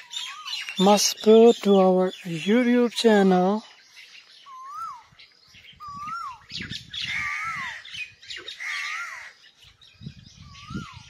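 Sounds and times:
birds squawking: 0.0s - 11.0s
bird whistling rising and falling: 4.4s - 7.8s, 10.2s - 11.0s.

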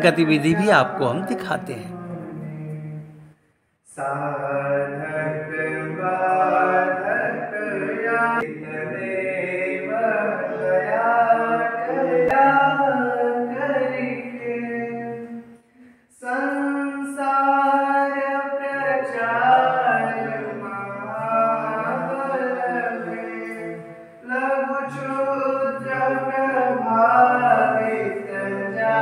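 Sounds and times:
group singing devotional song: 0.0s - 3.3s, 3.9s - 29.0s.

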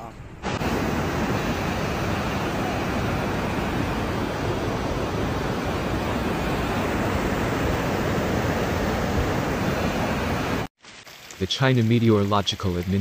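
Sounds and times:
river rushing water: 0.4s - 10.7s.

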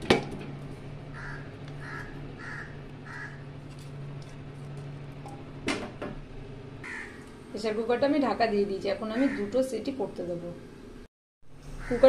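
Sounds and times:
steady low hum: 0.0s - 12.0s
crow cawing: 1.1s - 3.5s, 6.8s - 7.3s, 9.1s - 9.6s, 11.8s - 12.0s.

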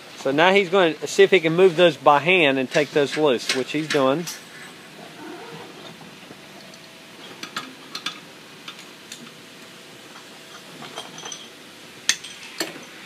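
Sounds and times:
wrench clinking on metal fittings: 10.5s - 13.0s.

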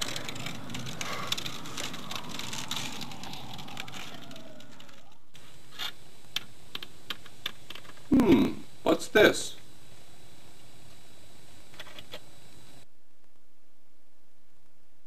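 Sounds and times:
faint falling tone: 0.0s - 5.4s
steady hiss: 0.0s - 12.9s.

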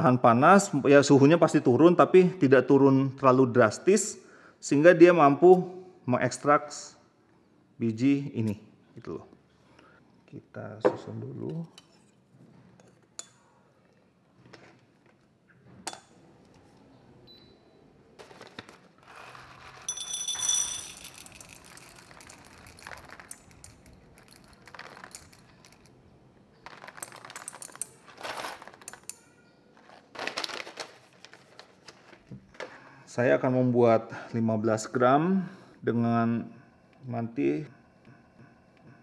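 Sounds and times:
coffee beans rattling into metal cup: 18.2s - 25.9s, 26.6s - 29.2s, 29.8s - 32.1s.

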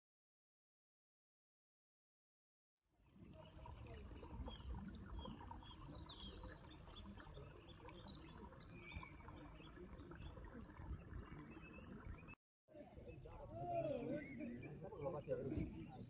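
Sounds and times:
stream trickling over stones: 3.0s - 12.4s
birds chirping: 3.2s - 12.4s.

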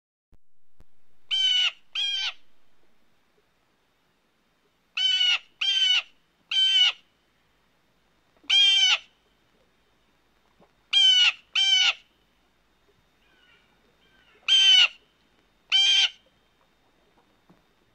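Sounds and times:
blue jay calling: 1.3s - 2.6s, 5.0s - 7.0s, 8.5s - 9.1s, 10.9s - 12.0s, 13.2s - 15.0s, 15.7s - 16.2s.

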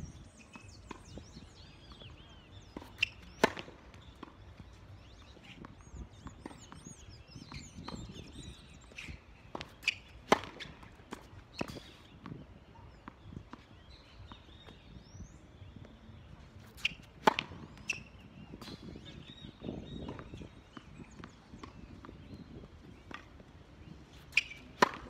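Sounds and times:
tennis ball bouncing: 0.5s - 14.9s, 16.2s - 25.0s
racket striking tennis ball: 2.6s - 4.4s, 9.5s - 11.9s, 16.6s - 18.0s, 24.2s - 25.0s.

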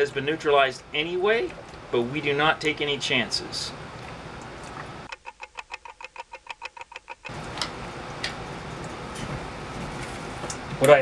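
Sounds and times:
fast clock-like ticking: 5.1s - 7.3s.

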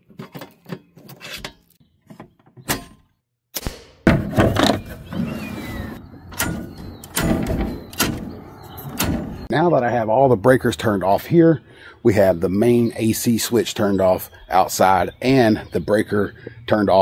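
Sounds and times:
handling noise: 4.1s - 9.5s
circuit breakers clicking off: 6.3s - 9.5s.

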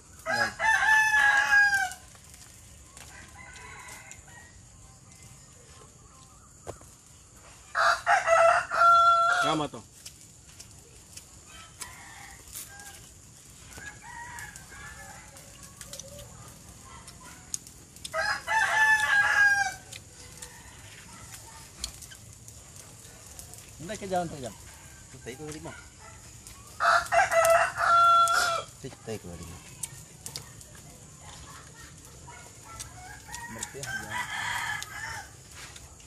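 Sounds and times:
rooster crowing: 0.1s - 2.1s, 3.0s - 4.9s, 7.7s - 9.7s, 11.4s - 16.3s, 18.1s - 21.4s, 24.3s - 28.8s, 32.3s - 35.6s.

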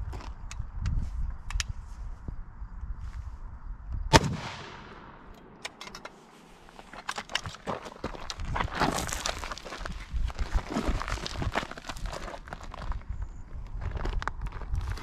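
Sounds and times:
rifle shot: 4.1s - 5.7s.

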